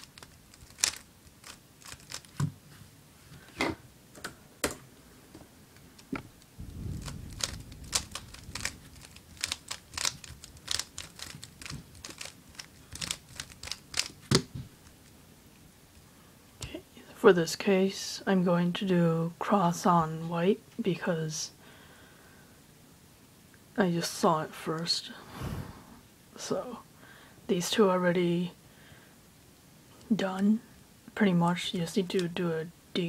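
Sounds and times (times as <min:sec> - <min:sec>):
puzzle cube plastic clicks: 0:00.0 - 0:02.5, 0:07.0 - 0:15.2
low handling rustle: 0:00.0 - 0:16.1.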